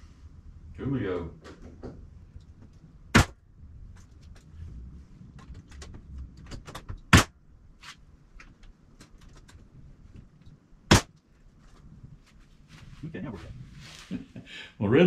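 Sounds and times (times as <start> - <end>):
staple gun firing into plywood: 7.1 - 7.3.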